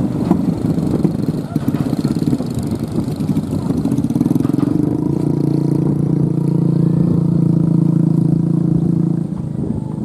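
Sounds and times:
motorcycles passing: 0.0s - 10.0s
truck engine climbing: 0.0s - 10.0s.

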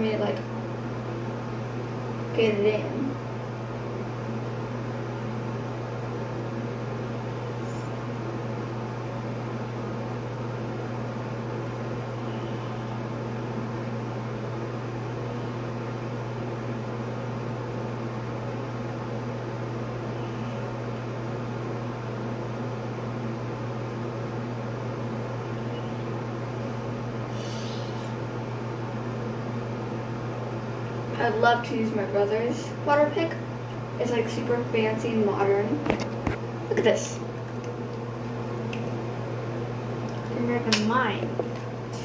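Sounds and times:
exhaust fan humming: 0.0s - 42.0s.

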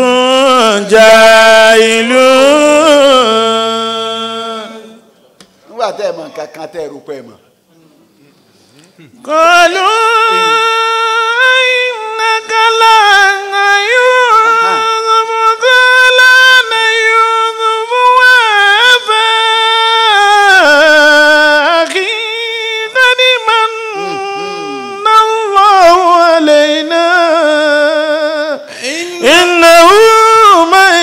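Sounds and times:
man chanting melodic recitation: 0.0s - 5.1s, 9.0s - 31.0s.

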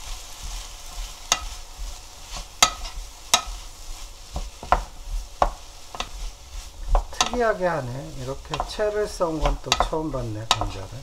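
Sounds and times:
food sizzling in oil: 0.0s - 11.0s
wooden spatula knocking on pot: 1.3s - 1.9s, 2.6s - 3.6s, 4.3s - 6.2s, 6.8s - 7.6s, 8.4s - 10.9s.

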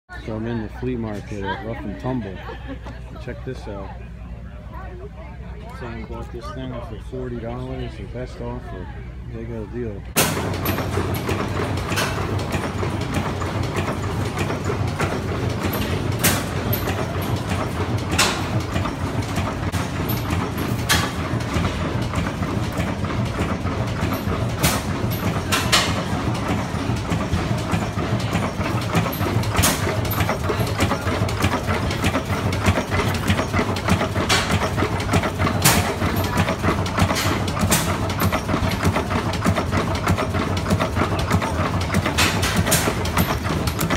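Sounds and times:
gas engines chugging: 0.1s - 43.9s.

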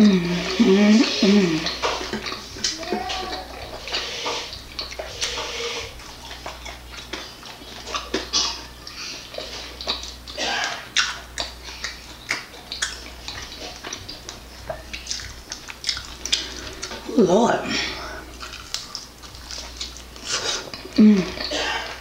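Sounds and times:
chewing food: 0.0s - 22.0s
low steady hum: 0.0s - 22.0s
wet mouth clicks and lip smacks: 9.3s - 17.1s, 18.4s - 21.5s.

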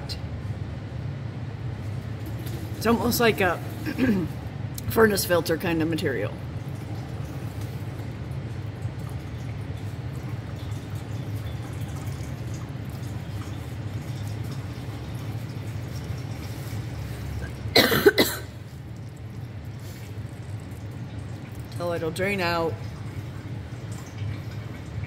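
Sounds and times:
person coughing: 3.8s - 4.4s, 17.7s - 18.6s
oil pouring into a drain pan: 6.5s - 17.7s, 18.5s - 25.0s.

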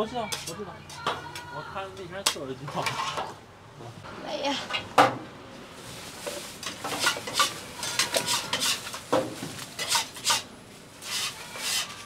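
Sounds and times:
utensils clinking on steel trays: 0.1s - 3.4s, 6.2s - 12.0s
plastic bag rustling: 5.6s - 12.0s.

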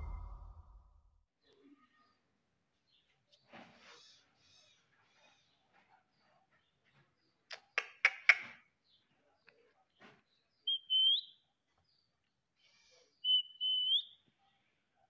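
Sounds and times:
parrot clicks: 7.5s - 8.6s
parrot whistled calls: 13.2s - 14.1s.

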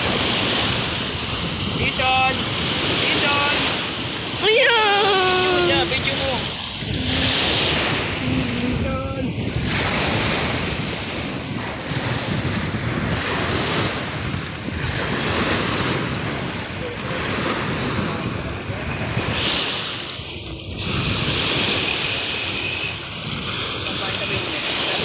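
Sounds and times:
waves breaking on shore: 0.0s - 25.0s
wind buffeting microphone: 0.0s - 25.0s.

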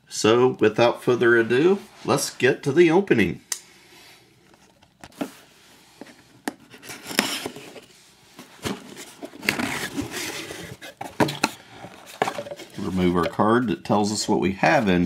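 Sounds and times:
cardboard rustling and scraping: 4.5s - 13.6s.

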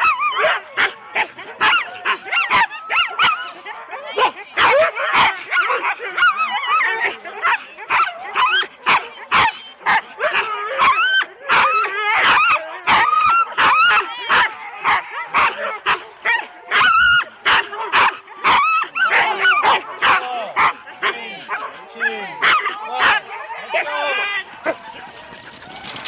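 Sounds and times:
dogs' high-pitched cries: 0.0s - 20.8s
dogs barking and yelping: 0.0s - 26.0s.

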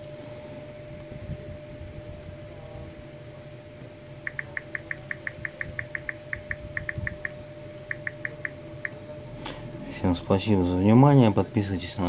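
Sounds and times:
phone keyboard clicks: 4.3s - 7.3s.

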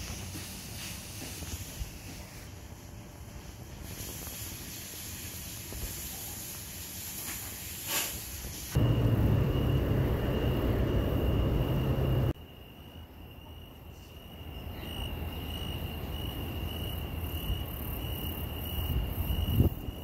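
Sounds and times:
crickets chirping: 8.7s - 20.0s
low rumble: 8.8s - 12.4s.

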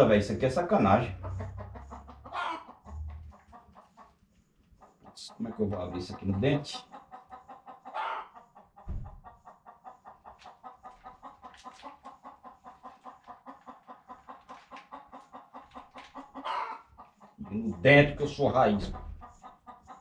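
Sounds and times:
chicken clucking: 0.0s - 20.0s
low thump: 8.9s - 9.3s.

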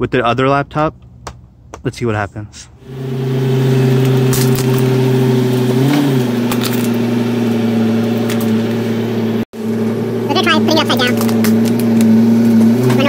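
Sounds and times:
car engine running: 2.8s - 13.0s.

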